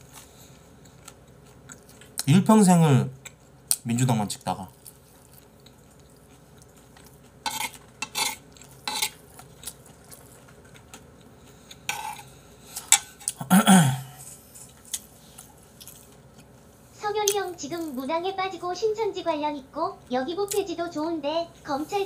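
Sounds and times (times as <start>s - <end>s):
spoon scraping ceramic bowl: 7.4s - 9.2s, 11.9s - 13.3s.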